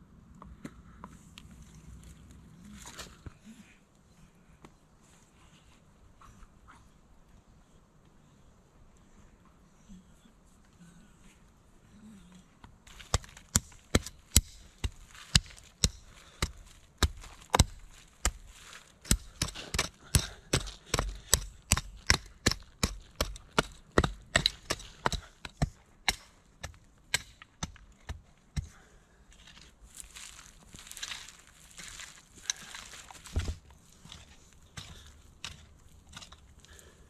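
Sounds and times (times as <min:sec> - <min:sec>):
digging tool chopping into earth: 0:12.9 - 0:28.8.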